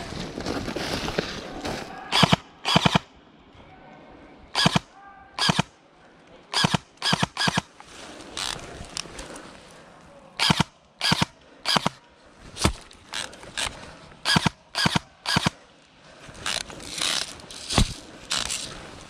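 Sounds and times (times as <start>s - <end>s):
airsoft gun shots: 2.1s - 3.1s, 4.6s - 5.7s.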